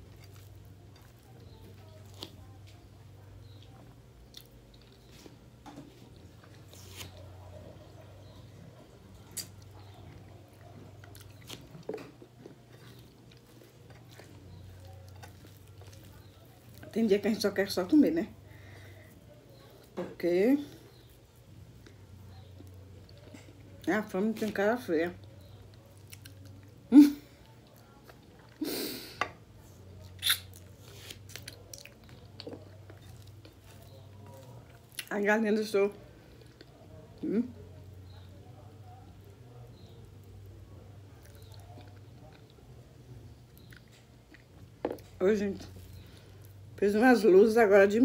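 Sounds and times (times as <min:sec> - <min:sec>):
person chewing food: 0:00.0 - 0:02.8, 0:09.2 - 0:16.9, 0:30.1 - 0:35.1, 0:43.4 - 0:46.6
wet mouth noises: 0:30.1 - 0:30.6
person biting and chewing: 0:30.1 - 0:35.1.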